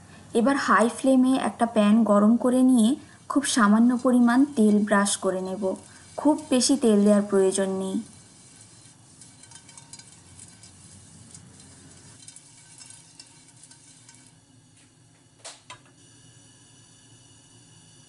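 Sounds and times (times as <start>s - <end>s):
oil sizzling in a pan: 0.5s - 15.0s
pastry brush crackling: 2.5s - 14.3s.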